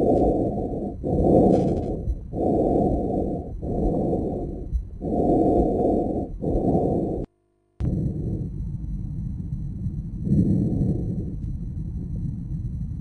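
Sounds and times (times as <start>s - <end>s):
tracheal breath sounds: 0.0s - 7.3s.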